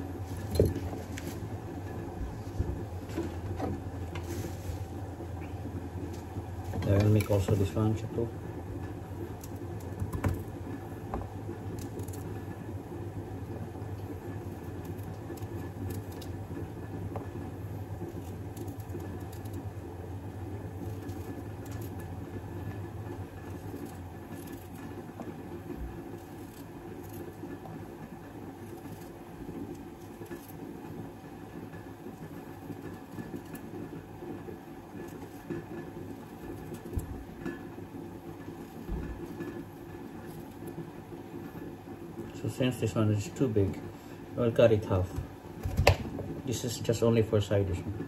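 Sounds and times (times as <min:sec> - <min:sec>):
sauce boiling in a pan: 0:07.4 - 0:44.5.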